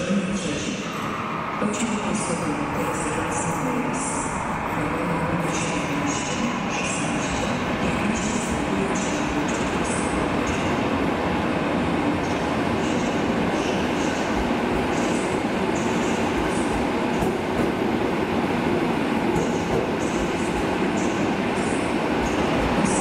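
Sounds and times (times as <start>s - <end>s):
train wheels rumbling: 12.2s - 23.0s.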